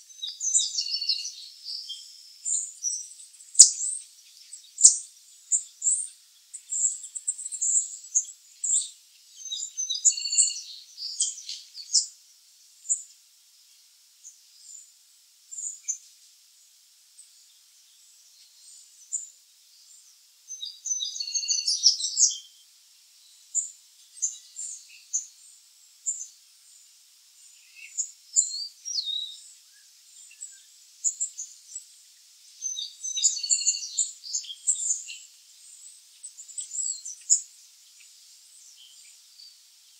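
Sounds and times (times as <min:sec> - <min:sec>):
chickadees chirping: 0:00.2 - 0:03.0, 0:06.6 - 0:12.1, 0:20.5 - 0:22.4, 0:32.6 - 0:35.3.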